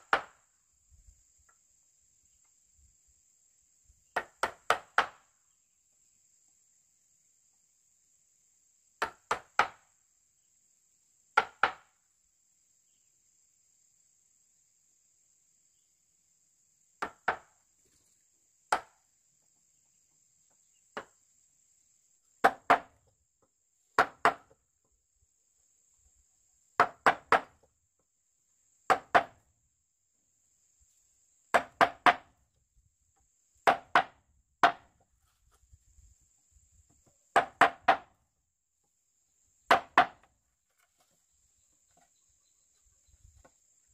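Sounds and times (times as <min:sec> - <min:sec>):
hand tool striking wood: 0:00.0 - 0:00.4, 0:26.8 - 0:27.6, 0:28.9 - 0:29.4, 0:31.5 - 0:32.3, 0:33.6 - 0:35.0, 0:37.3 - 0:38.2, 0:39.7 - 0:41.1.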